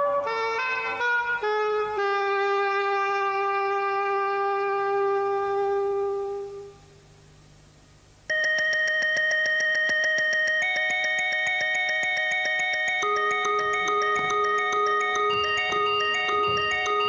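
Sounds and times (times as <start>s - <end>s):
bell-like chord: 8.3s - 17.0s
fast even ticking: 8.3s - 17.0s.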